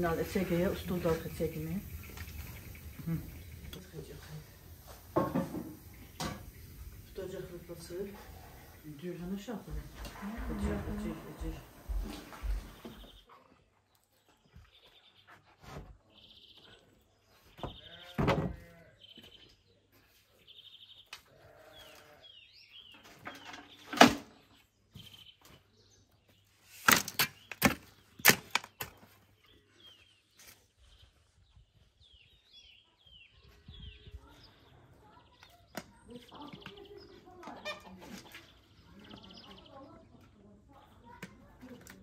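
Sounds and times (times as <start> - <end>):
small birds chirping: 0.0 - 42.0
farm animal calling: 6.6 - 13.5, 17.5 - 19.4, 21.1 - 22.8, 36.3 - 39.8.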